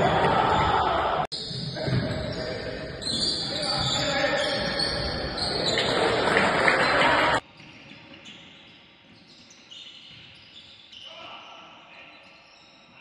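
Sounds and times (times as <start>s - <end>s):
noise of players and spectators: 0.0s - 13.0s.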